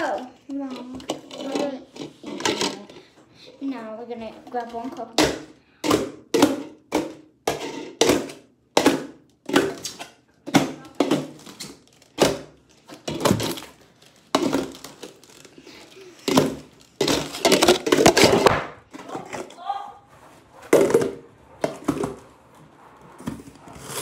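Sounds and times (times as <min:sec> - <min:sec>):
plastic cups knocking on table: 0:00.7 - 0:03.0, 0:04.8 - 0:15.5, 0:16.1 - 0:19.6, 0:20.6 - 0:22.3.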